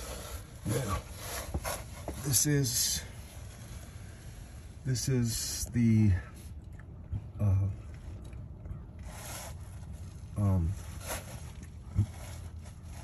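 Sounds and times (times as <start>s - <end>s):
faint scraping and rubbing: 0.0s - 5.1s, 8.8s - 13.0s
man making hesitant sounds: 7.2s - 7.9s.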